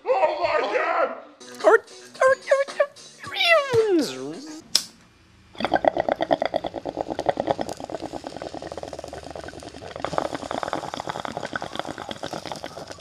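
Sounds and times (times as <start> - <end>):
water bubbling in a bong: 5.6 - 13.0.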